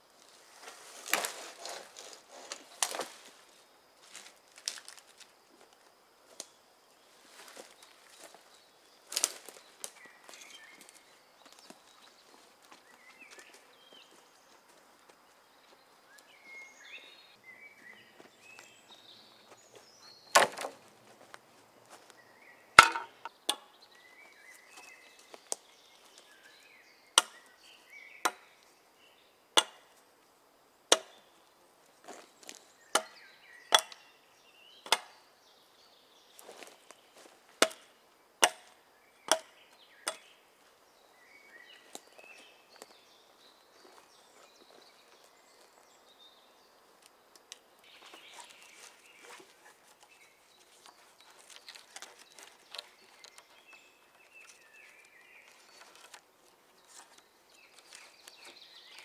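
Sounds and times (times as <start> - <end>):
soft handling rustle: 0.2 - 16.4, 47.0 - 59.0
wooden club knocking wooden pole: 22.8 - 23.6, 29.6 - 29.8.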